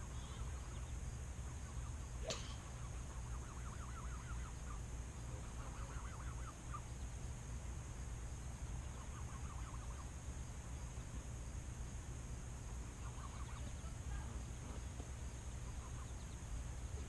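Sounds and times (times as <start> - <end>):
faint bird calls: 0.0 - 7.2, 8.4 - 10.2, 12.8 - 17.0
steady low rumble: 0.0 - 17.0.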